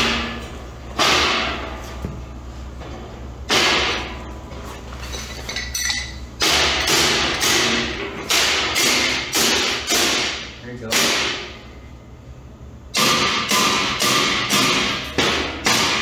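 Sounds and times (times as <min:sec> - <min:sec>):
hammer striking steel plate: 0:13.0 - 0:16.0.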